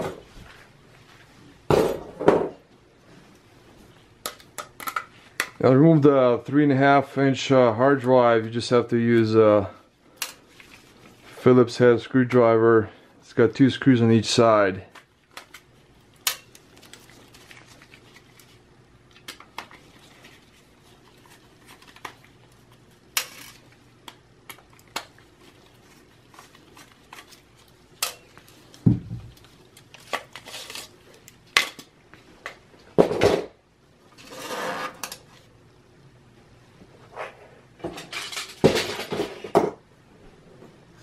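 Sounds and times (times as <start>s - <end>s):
short scrape: 34.2s - 35.0s.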